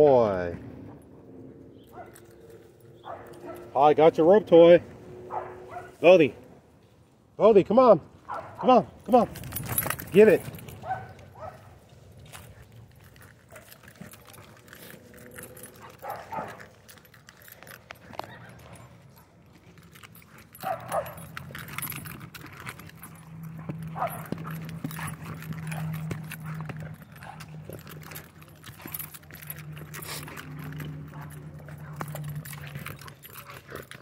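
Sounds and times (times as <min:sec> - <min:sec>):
collar tags jingling: 0:00.0 - 0:06.5, 0:07.5 - 0:34.0
paws scuffing on dirt: 0:08.2 - 0:34.0.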